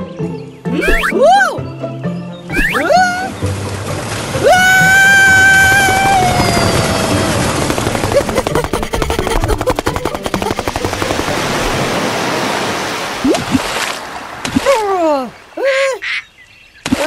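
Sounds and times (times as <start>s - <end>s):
cartoon rushing noise: 0.8s - 1.5s, 2.5s - 3.3s, 4.9s - 10.6s
fast rattle of clicks: 7.6s - 11.3s.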